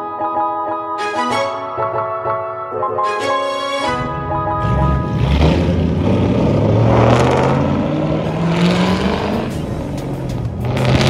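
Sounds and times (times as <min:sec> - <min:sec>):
car engine revving: 0:04.0 - 0:11.0.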